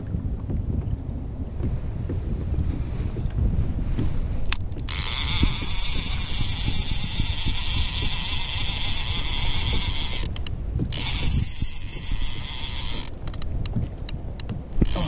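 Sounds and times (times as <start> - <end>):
fishing reel whirring: 4.4 - 13.7, 14.8 - 15.0.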